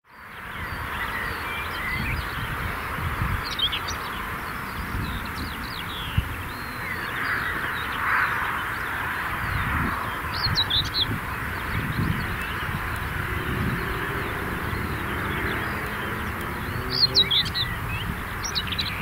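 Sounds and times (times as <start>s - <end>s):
small birds chirping: 0.1s - 19.0s
wind on microphone: 0.6s - 19.0s.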